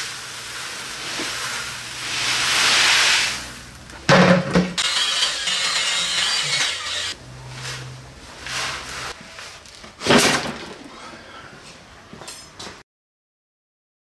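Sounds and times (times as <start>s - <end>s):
plastic barrel thud: 4.1s - 4.8s
cordless drill driving screws: 4.8s - 7.2s.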